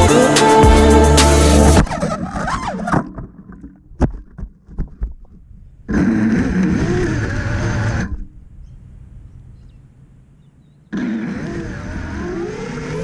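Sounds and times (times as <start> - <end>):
drone motors whining: 5.9 - 8.4, 10.9 - 13.0.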